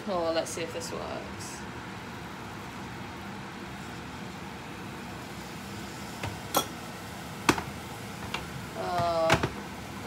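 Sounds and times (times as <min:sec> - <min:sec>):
kettle clinking: 0:06.2 - 0:09.6.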